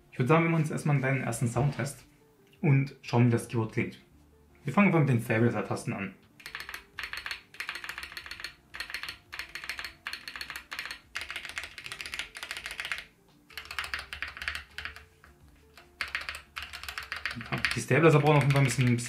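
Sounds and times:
keyboard keys clacking: 6.4s - 19.0s.

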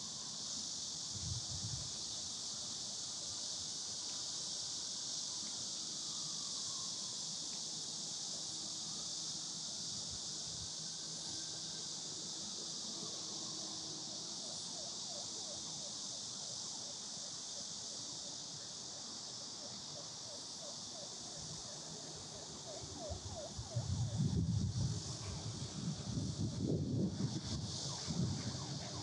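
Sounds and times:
cicadas droning: 0.0s - 29.0s
wind buffeting microphone: 23.2s - 29.0s.

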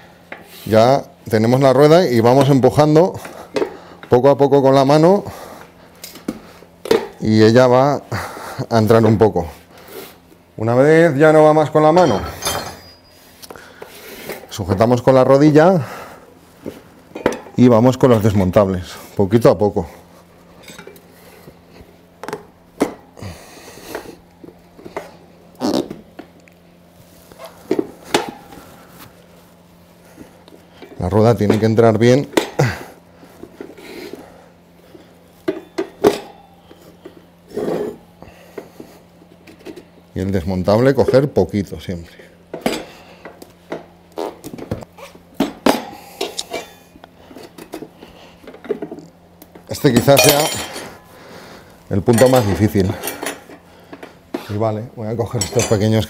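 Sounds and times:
rubber tyre creaking and squeaking: 25.6s - 26.0s.

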